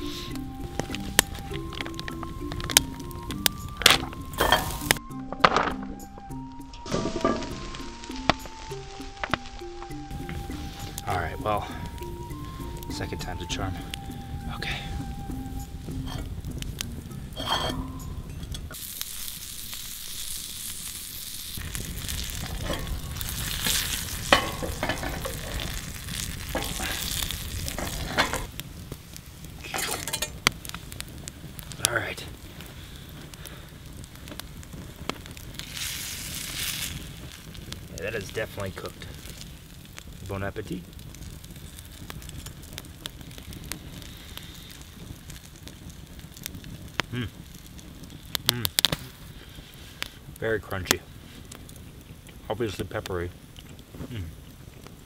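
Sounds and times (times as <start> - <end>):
fish sizzling in a frying pan: 0.0 - 5.0, 6.0 - 55.0
sharp frying pops: 0.0 - 13.0, 15.6 - 55.0
man humming: 47.1 - 47.5, 48.5 - 48.8, 54.0 - 54.4.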